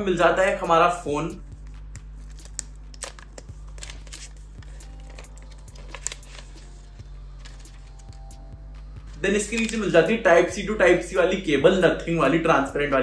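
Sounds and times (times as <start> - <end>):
paper and cardboard packaging rustling: 1.6 - 8.4, 9.0 - 10.0.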